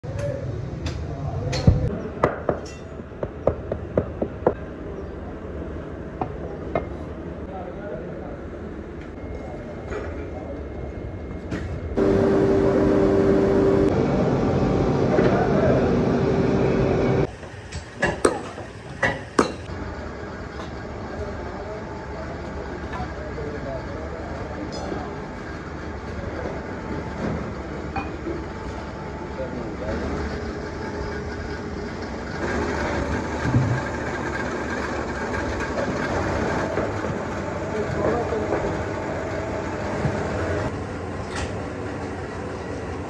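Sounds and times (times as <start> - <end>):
steady low hum: 10.4 - 17.3
loud foundry noise: 12.0 - 14.0, 29.8 - 41.6.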